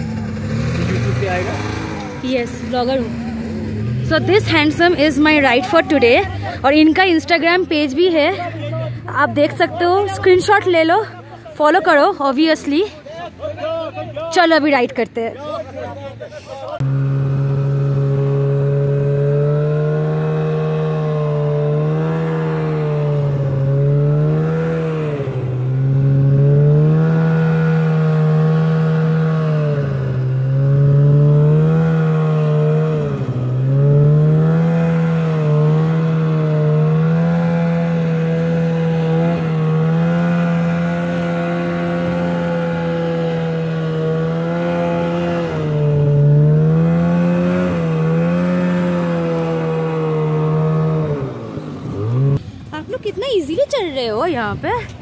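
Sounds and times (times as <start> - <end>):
snowmobile engine revving: 0.0 - 54.9.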